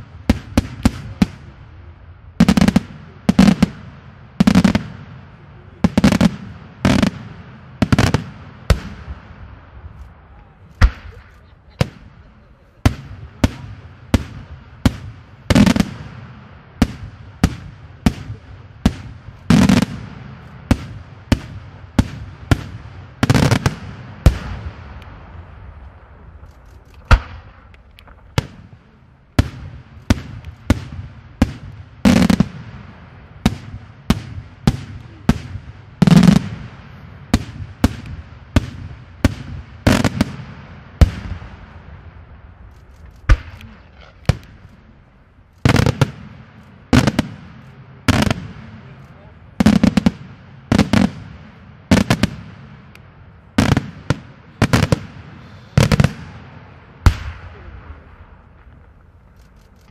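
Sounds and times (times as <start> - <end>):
firework shells bursting: 33.4 - 59.9.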